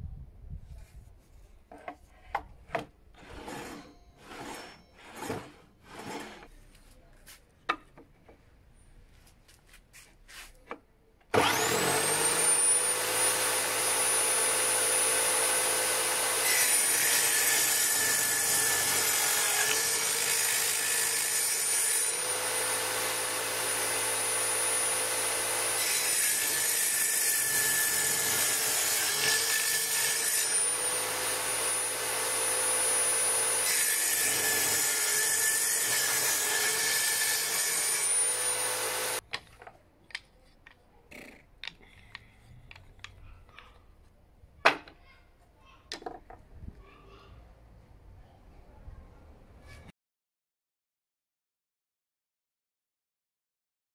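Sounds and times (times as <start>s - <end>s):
saw cutting wood: 3.2s - 6.5s, 11.3s - 39.2s
table saw whining: 3.2s - 6.5s, 11.3s - 39.2s.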